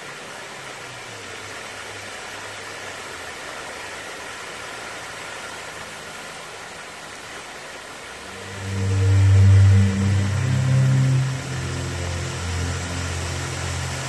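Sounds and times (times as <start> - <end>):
fountain water spraying: 0.0 - 14.0.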